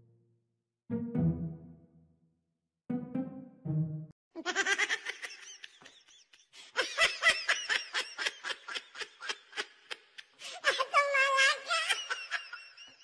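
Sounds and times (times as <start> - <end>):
high-pitched laughter: 4.4 - 13.0.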